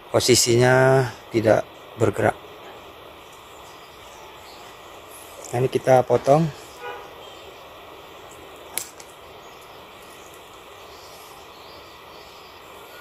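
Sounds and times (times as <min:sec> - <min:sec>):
faint outdoor hiss: 0:00.0 - 0:13.0
scissors snipping branch: 0:08.3 - 0:09.2.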